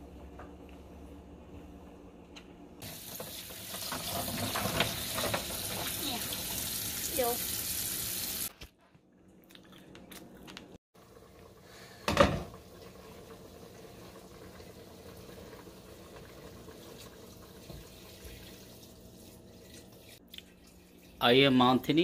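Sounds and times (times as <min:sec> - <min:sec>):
tap water running into sink: 0:02.8 - 0:08.5, 0:12.2 - 0:19.0.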